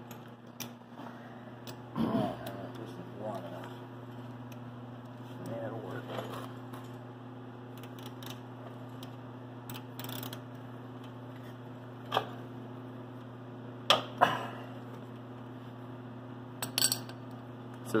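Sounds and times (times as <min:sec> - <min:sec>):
steady low hum: 0:00.0 - 0:18.0
ratchet wrench clicking: 0:09.7 - 0:10.4.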